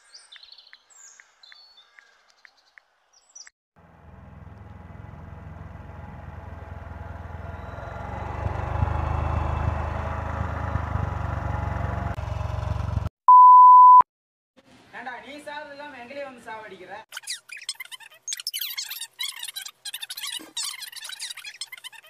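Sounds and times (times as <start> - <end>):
motorcycle engine running: 3.8 - 13.1
censor bleep: 13.3 - 14.1.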